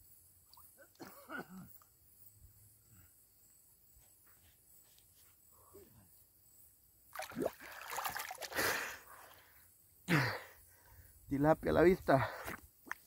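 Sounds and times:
water splashing loudly: 7.2 - 8.7.

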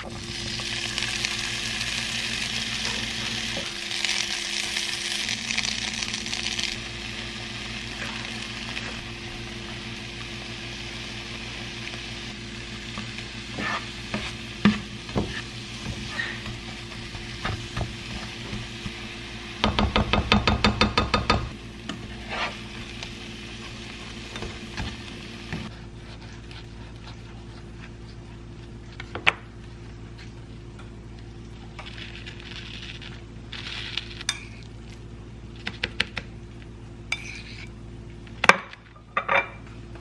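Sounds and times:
vegetables sizzling in frying pan: 0.0 - 25.7.

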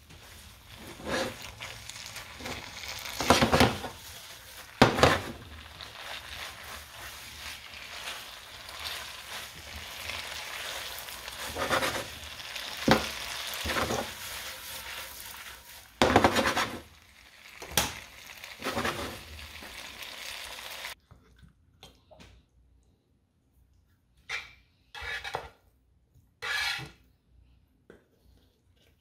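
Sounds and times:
food sizzling in a frying pan: 0.0 - 21.0
utensil stirring in pan: 0.0 - 21.0, 26.4 - 27.0.

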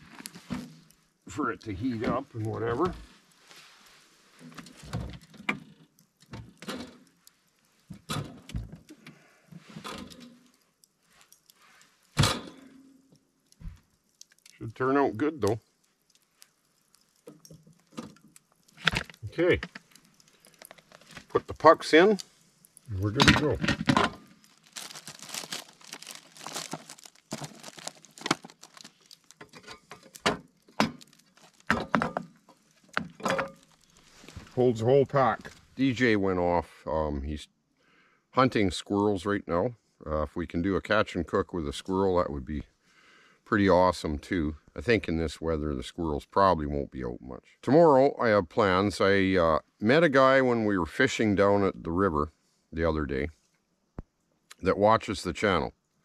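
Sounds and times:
plastic bag crinkling: 18.7 - 22.2, 23.8 - 32.0
wood pucks clicking and knocking: 24.8 - 33.8.

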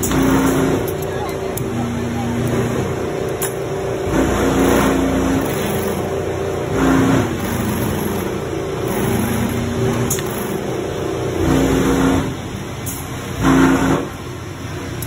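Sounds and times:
workshop machinery noise: 0.0 - 15.0
sewing machine stitching: 4.1 - 6.1, 6.7 - 10.7.

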